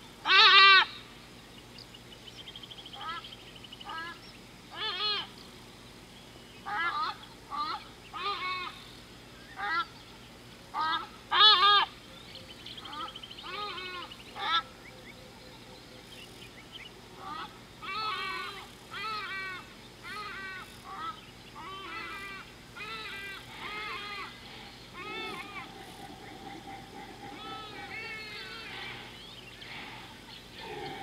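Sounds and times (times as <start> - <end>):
large birds harsh calls: 0.0 - 31.0.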